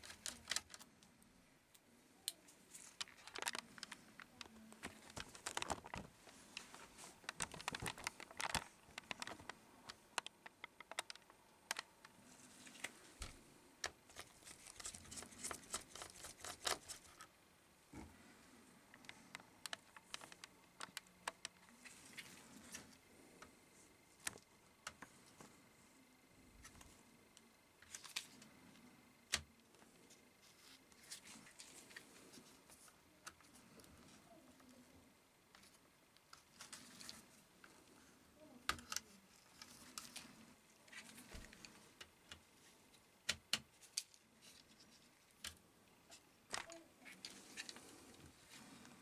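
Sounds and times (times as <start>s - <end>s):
clicks and taps of small parts: 7.3s - 11.9s.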